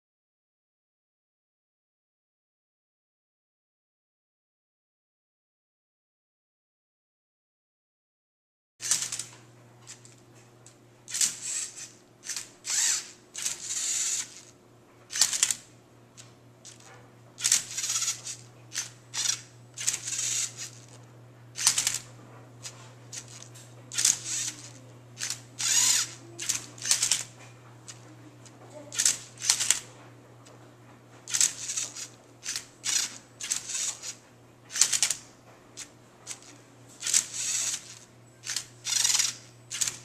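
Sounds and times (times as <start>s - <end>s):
steady low hum: 8.8s - 40.0s
plastic cube layers rasping: 11.1s - 14.5s, 17.4s - 21.0s, 21.6s - 22.0s, 22.6s - 27.3s, 28.8s - 29.9s, 31.3s - 35.2s, 35.8s - 40.0s
servo motors whirring: 11.1s - 15.6s, 17.4s - 21.0s, 21.6s - 22.0s, 22.6s - 27.3s, 28.9s - 29.8s, 31.3s - 35.2s, 35.8s - 40.0s.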